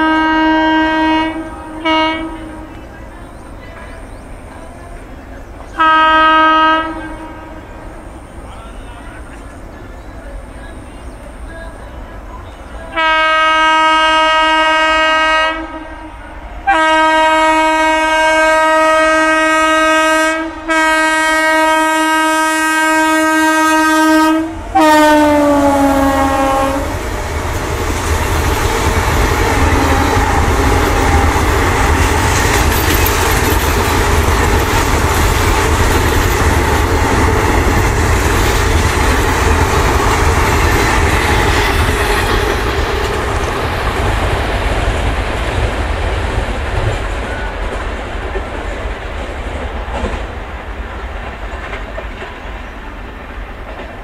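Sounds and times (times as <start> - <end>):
locomotive horn blasts: 0.0 - 2.8, 5.8 - 7.8, 12.9 - 27.0, 29.5 - 32.1
train wheels clattering over rails: 25.7 - 54.0.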